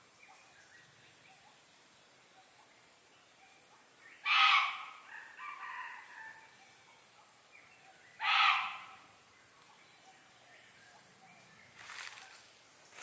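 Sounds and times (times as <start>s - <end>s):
animal calls: 4.2s - 6.4s, 8.2s - 9.1s.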